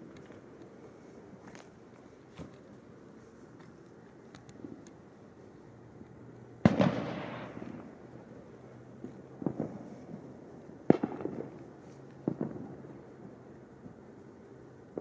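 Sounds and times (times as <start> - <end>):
fireworks banging with echo: 6.6 - 8.2, 8.9 - 13.3
fireworks popping: 6.6 - 8.2, 8.9 - 13.3.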